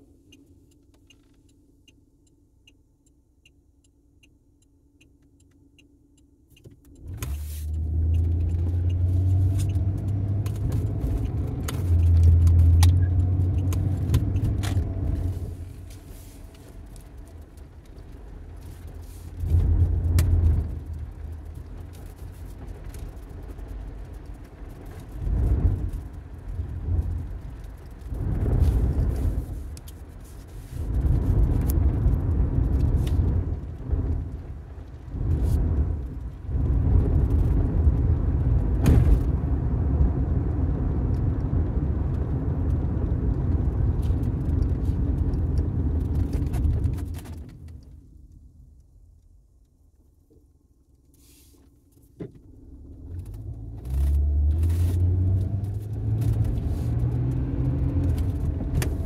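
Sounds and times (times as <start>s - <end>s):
rain on a car: 6.8s - 59.0s
thunder crack and rumble: 19.4s - 21.9s, 25.1s - 29.7s, 30.8s - 47.1s.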